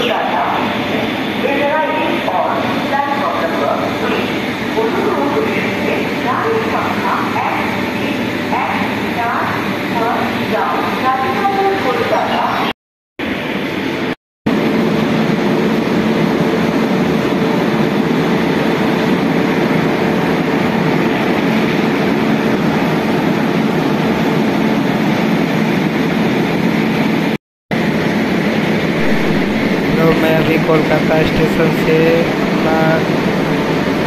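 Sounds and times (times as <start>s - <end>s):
train droning hum: 0.0s - 34.0s
rushing din: 28.7s - 34.0s.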